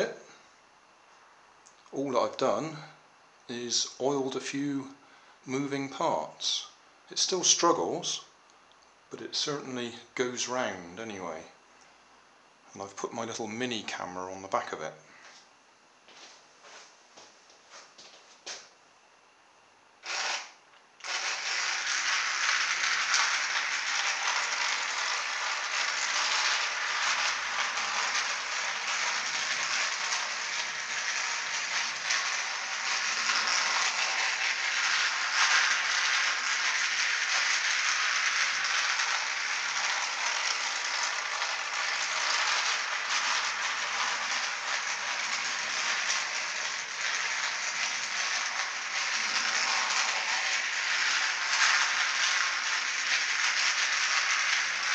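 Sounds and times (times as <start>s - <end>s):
toy train motor rattling whir: 0.0s - 0.2s, 20.0s - 54.9s.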